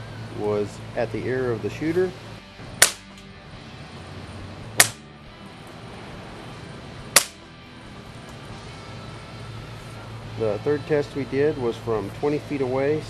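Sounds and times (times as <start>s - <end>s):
air rifle shots: 2.8s - 3.2s, 4.8s - 5.0s, 7.1s - 7.4s.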